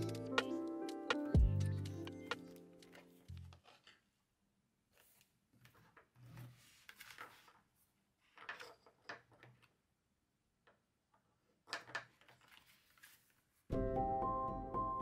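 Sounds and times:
paper rustling and sliding: 4.9s - 8.5s, 12.1s - 13.7s.

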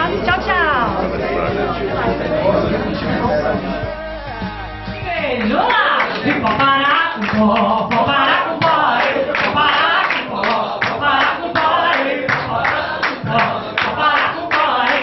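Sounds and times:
group of voices singing along: 0.0s - 15.0s
hands clapping a beat: 4.4s - 15.0s
woman singing into a microphone: 5.0s - 15.0s.

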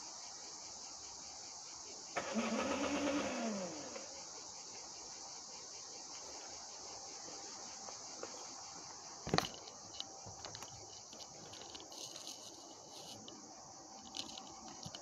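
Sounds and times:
insect chorus chirring: 0.0s - 15.0s
phone handling clicks and rustles: 9.3s - 13.3s.

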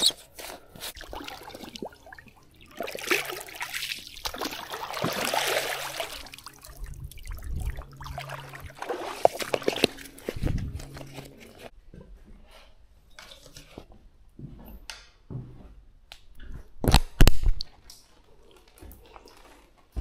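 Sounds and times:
water sloshing: 0.0s - 11.7s
water filling a container: 0.8s - 11.7s.

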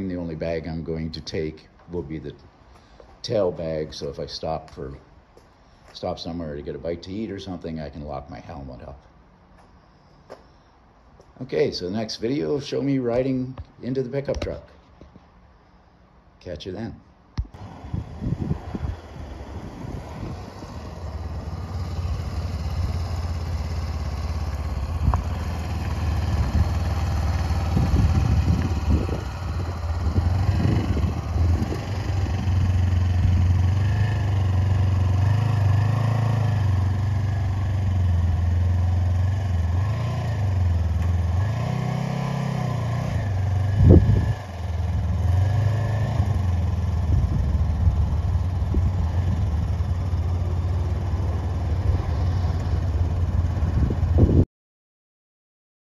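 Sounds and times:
motorcycle engine revving: 17.5s - 54.4s.

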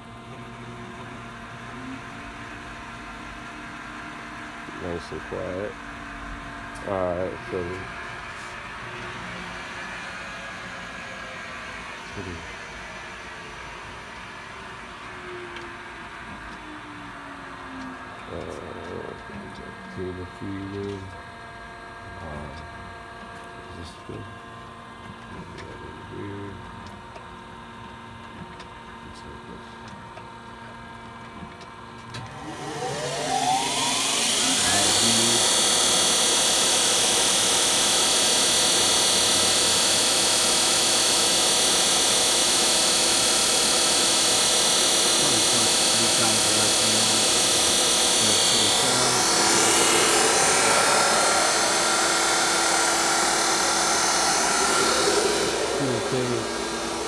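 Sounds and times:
grinding spindle high-pitched whine: 32.2s - 57.0s
grinder humming: 32.3s - 57.0s.

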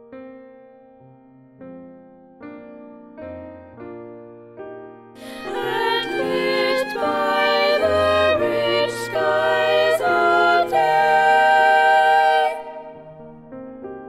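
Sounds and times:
piano accompaniment: 0.0s - 14.0s.

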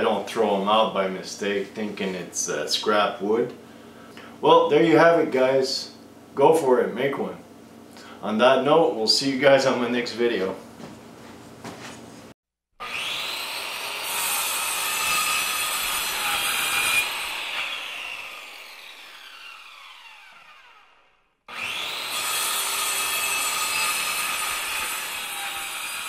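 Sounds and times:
saw blade cutting wood: 12.8s - 26.0s
saw winding down whine: 12.8s - 26.0s
table saw running: 12.8s - 26.0s.

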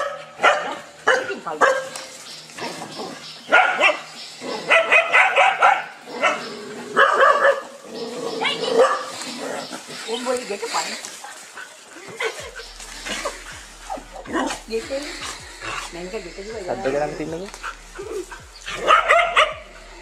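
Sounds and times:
dog barking: 0.0s - 2.1s, 3.5s - 7.8s, 8.4s - 9.7s, 12.2s - 14.6s, 17.6s - 19.8s.

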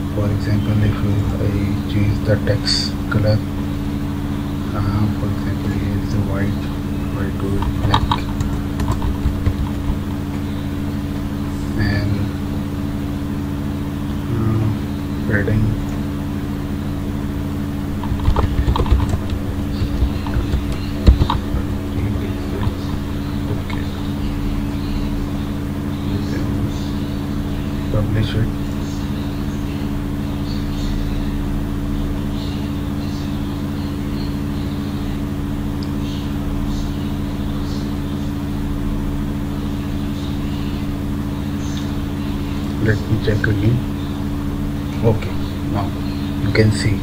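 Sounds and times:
steady low hum: 0.0s - 47.0s
computer keyboard keystrokes: 7.6s - 10.1s, 18.0s - 21.6s.

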